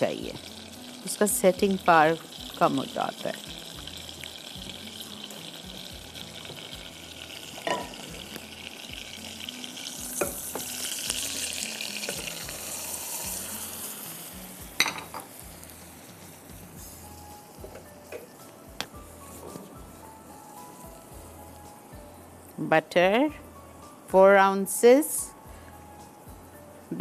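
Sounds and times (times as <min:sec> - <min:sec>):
butter sizzling in a saucepan: 0:00.0 - 0:27.0
spoon tapping against pan: 0:14.8 - 0:15.3.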